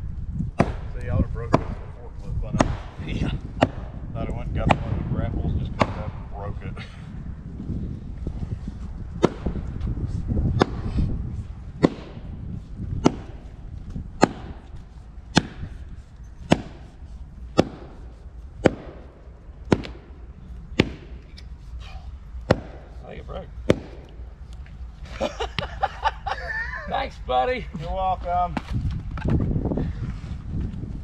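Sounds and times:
axe chopping into a log: 0:00.6 - 0:00.9, 0:01.5 - 0:01.8, 0:02.5 - 0:03.0, 0:03.6 - 0:03.9, 0:04.6 - 0:05.0, 0:05.7 - 0:06.1, 0:09.2 - 0:09.5, 0:10.6 - 0:10.9, 0:11.8 - 0:12.2, 0:13.0 - 0:13.4, 0:14.2 - 0:14.6, 0:15.3 - 0:15.7, 0:16.4 - 0:16.9, 0:17.5 - 0:18.0, 0:18.6 - 0:19.1, 0:19.7 - 0:20.1, 0:20.8 - 0:21.2, 0:22.5 - 0:23.0, 0:23.6 - 0:24.2.

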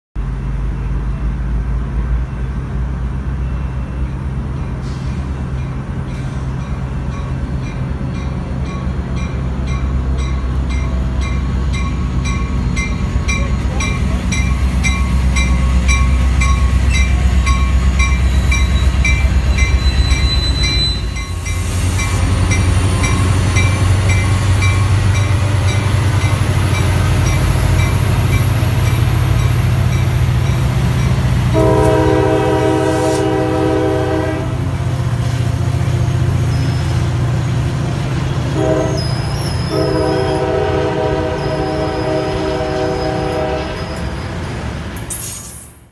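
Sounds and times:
diesel locomotive engine drone: 0:00.2 - 0:45.9
locomotive bell ringing: 0:05.6 - 0:32.4
high-pitched squeal: 0:16.8 - 0:24.8.

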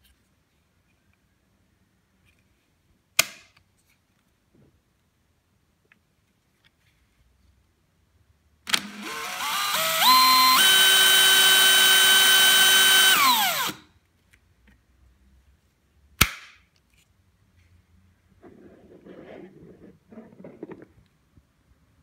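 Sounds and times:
power drill motor whine: 0:08.7 - 0:13.8.

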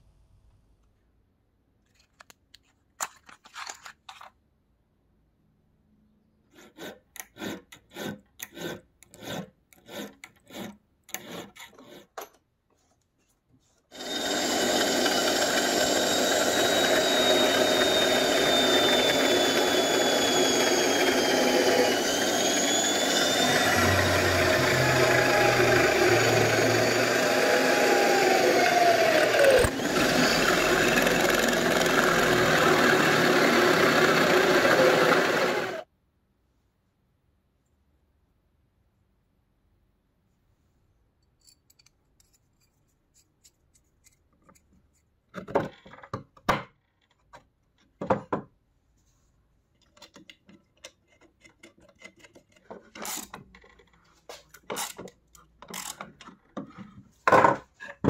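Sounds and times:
drill grinding into metal: 0:13.9 - 0:35.9.

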